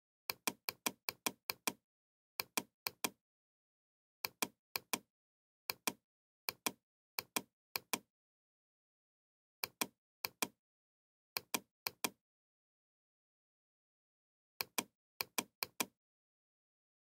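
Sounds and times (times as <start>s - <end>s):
computer mouse clicking: 0.3s - 1.8s, 2.4s - 3.2s, 4.2s - 5.1s, 5.7s - 8.1s, 9.6s - 10.6s, 11.4s - 12.2s, 14.6s - 16.0s.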